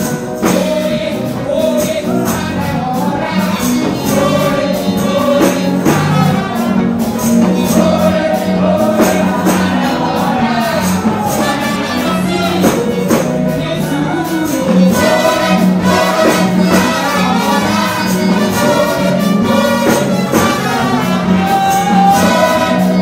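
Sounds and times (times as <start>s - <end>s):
gospel singing into a microphone: 0.0s - 23.0s
high percussion strokes: 0.0s - 23.0s.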